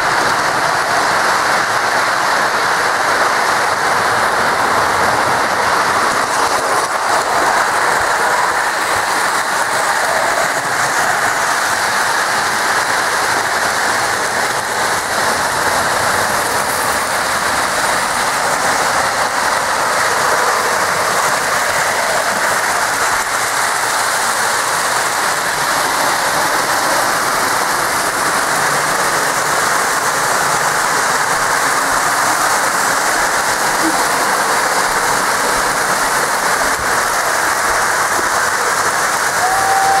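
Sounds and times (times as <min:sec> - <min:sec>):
model trains running on track: 0:00.0 - 0:40.0.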